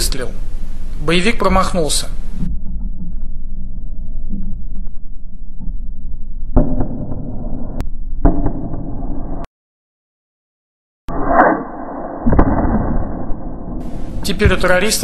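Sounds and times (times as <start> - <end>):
sharp bang: 11.1 - 15.0.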